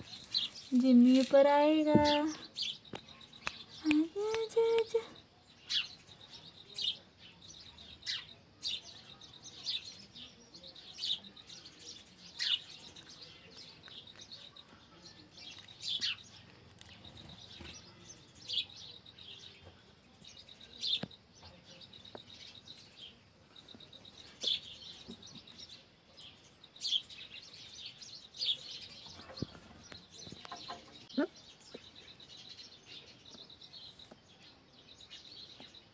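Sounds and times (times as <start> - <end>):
small birds chirping: 0.0 - 35.9.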